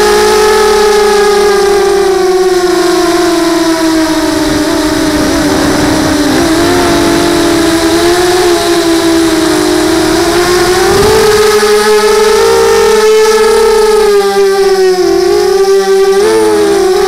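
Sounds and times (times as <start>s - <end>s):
drone motors whining: 0.0s - 17.0s
wind rumble on microphone: 0.0s - 17.0s.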